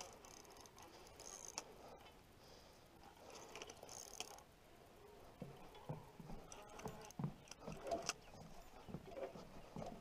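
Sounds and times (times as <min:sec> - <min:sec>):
fishing reel ratcheting clicks: 0:00.0 - 0:01.6, 0:03.4 - 0:04.4.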